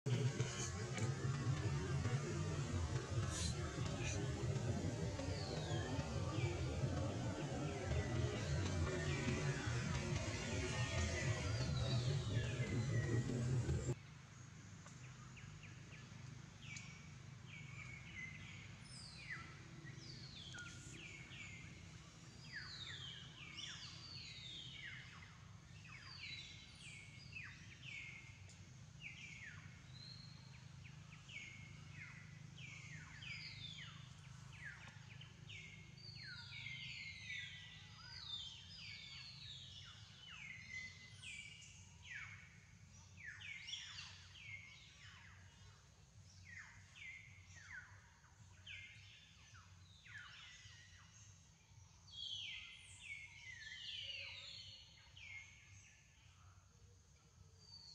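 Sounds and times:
birds chirping: 0:00.0 - 0:14.0
low steady hum: 0:00.1 - 0:15.4.

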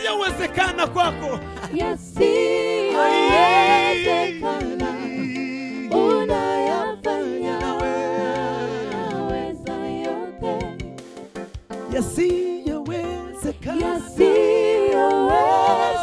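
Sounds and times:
backing singers: 0:01.3 - 0:10.8, 0:12.3 - 0:16.0
man singing gospel song: 0:03.0 - 0:06.5, 0:11.9 - 0:13.8.

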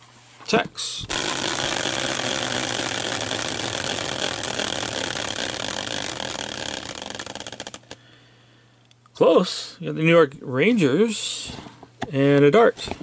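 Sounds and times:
caster wheel whirring and rattling: 0:01.1 - 0:08.0.

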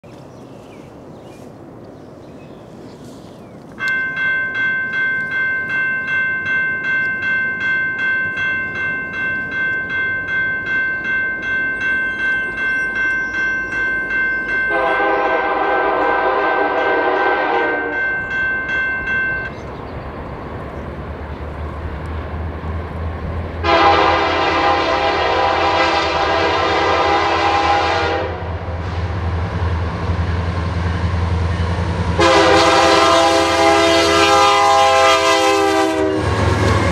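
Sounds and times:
railroad crossing bell ringing: 0:03.8 - 0:19.8, 0:23.6 - 0:28.8, 0:30.1 - 0:36.9
train horn blasts: 0:14.7 - 0:18.2, 0:23.6 - 0:29.0, 0:32.1 - 0:36.9.

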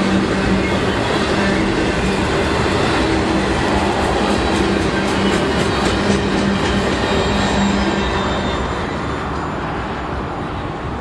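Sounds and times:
train wheels clicking over rail joints: 0:00.0 - 0:07.9
train rumble and hum: 0:00.0 - 0:11.0.

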